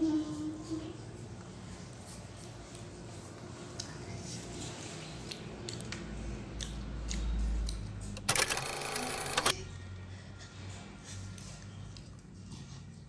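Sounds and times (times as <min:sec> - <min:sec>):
film projector rattle: 0:08.2 - 0:09.5.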